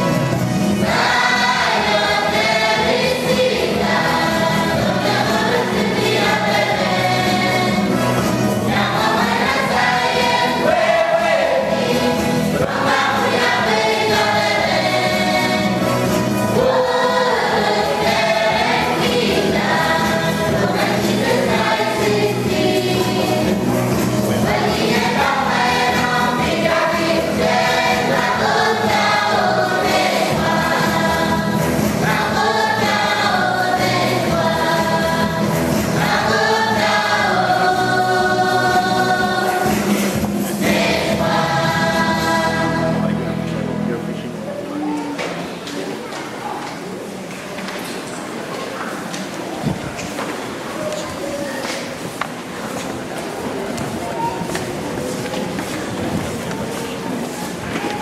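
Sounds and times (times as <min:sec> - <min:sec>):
women and girls singing in chorus: 0:00.7 - 0:43.3.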